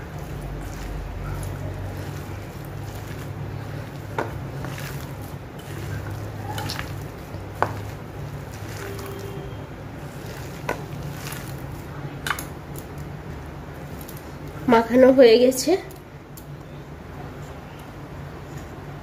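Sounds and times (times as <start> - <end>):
hand squishing wet mash: 0.0 - 15.1
steady low hum: 0.0 - 19.0.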